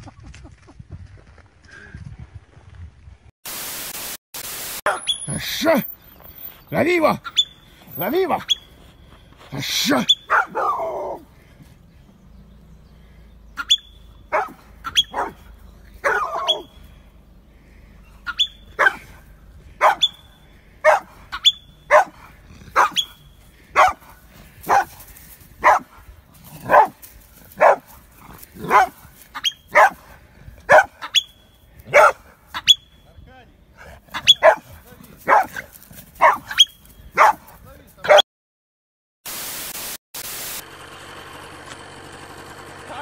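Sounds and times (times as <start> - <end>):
marmot alarm calls: 7.2 - 8.8, 10.0 - 10.5, 13.5 - 15.3, 18.0 - 19.0, 19.8 - 22.0, 22.8 - 23.9, 29.3 - 29.8, 31.0 - 33.0.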